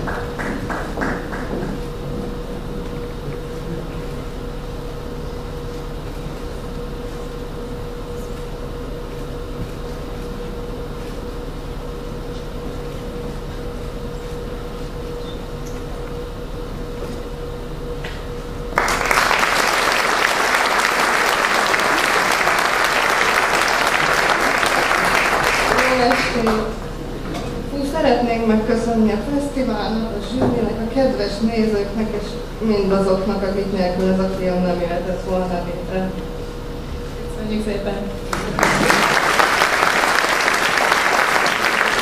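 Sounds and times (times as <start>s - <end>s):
audience applauding: 0.0s - 1.9s, 18.7s - 26.8s, 38.3s - 42.0s.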